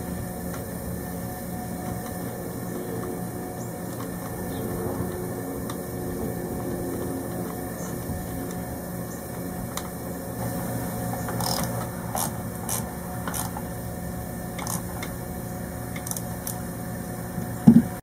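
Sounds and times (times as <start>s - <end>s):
steady low hum: 0.0s - 18.0s
cables clicking and scraping: 11.2s - 13.6s, 14.6s - 15.2s, 16.0s - 16.6s.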